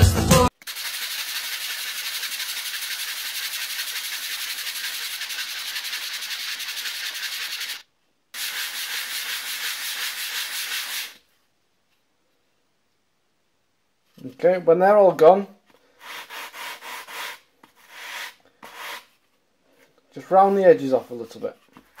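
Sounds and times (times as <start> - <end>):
wood block sanding rasp: 0.7 - 7.8, 8.4 - 11.2, 16.0 - 19.1.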